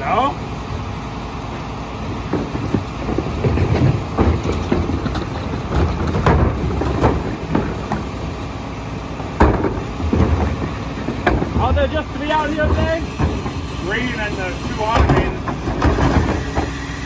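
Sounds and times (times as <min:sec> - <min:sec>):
garbage truck idling: 0:00.0 - 0:17.0
trash carts banging on hopper: 0:02.2 - 0:17.0
trash dropping in: 0:02.3 - 0:08.1, 0:09.3 - 0:13.6, 0:14.8 - 0:16.8.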